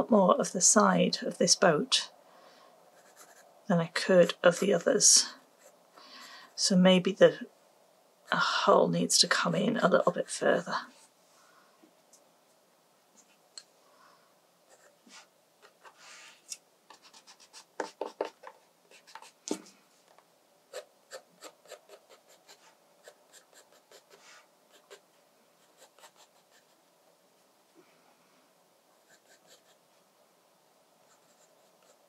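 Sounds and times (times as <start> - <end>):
pencil scratching on paper: 2.9 - 3.5, 14.7 - 19.7, 20.7 - 25.0, 25.6 - 26.8, 29.0 - 29.8, 31.1 - 32.0.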